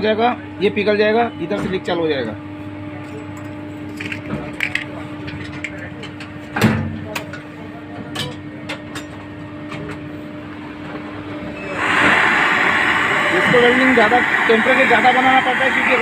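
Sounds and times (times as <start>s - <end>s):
steady hum: 0.0s - 16.0s
gas torch flame hissing: 11.6s - 16.0s.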